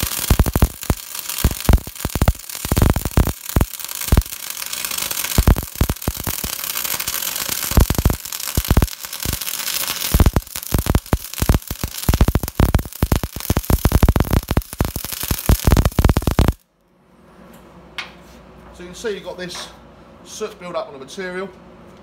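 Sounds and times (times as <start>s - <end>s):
welding arc hissing and crackling: 0.0s - 16.6s.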